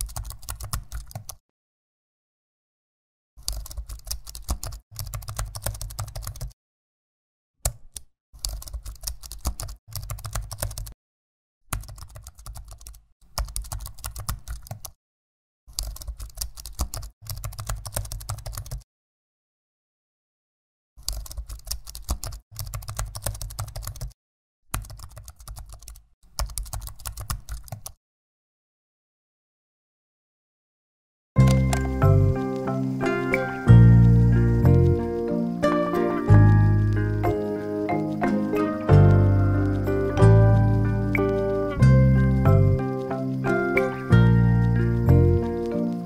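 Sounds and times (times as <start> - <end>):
computer keyboard typing: 0.0 - 1.4, 3.4 - 6.6, 7.6 - 11.0, 11.7 - 15.0, 15.7 - 18.8, 21.0 - 28.0, 31.4 - 35.2, 36.3 - 46.0.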